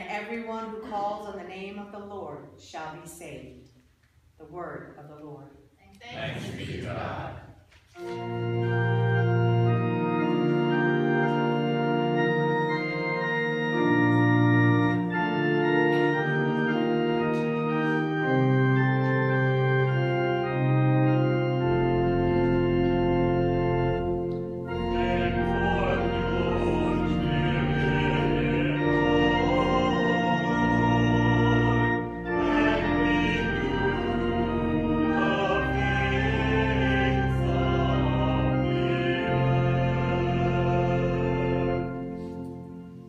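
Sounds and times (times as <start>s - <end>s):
organ playing slow chords: 8.0s - 43.0s.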